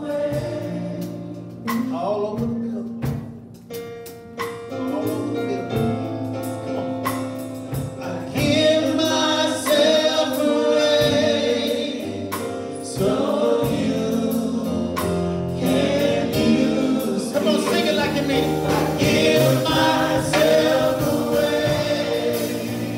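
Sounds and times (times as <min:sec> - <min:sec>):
choir singing: 0:00.0 - 0:01.4, 0:08.0 - 0:22.9
man singing lead: 0:01.6 - 0:03.3, 0:07.7 - 0:12.3, 0:15.6 - 0:22.8.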